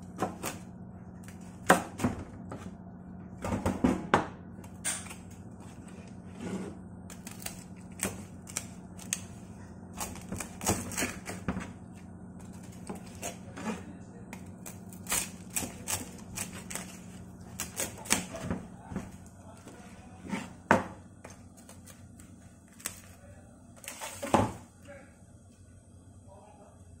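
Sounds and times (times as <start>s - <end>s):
knife crunching through crackling: 7.1s - 11.5s, 12.4s - 18.5s.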